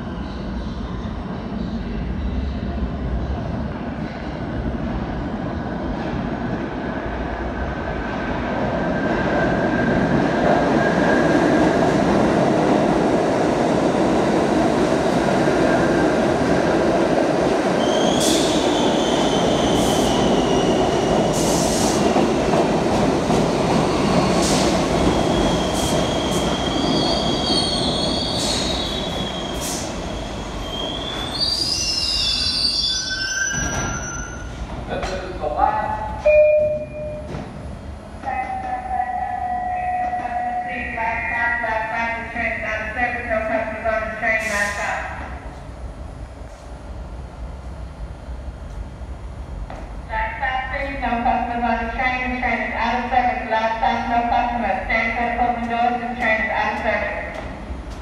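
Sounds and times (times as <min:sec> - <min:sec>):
subway train rumble: 0:00.0 - 0:58.0
high-pitched wheel squeals: 0:30.6 - 0:34.5.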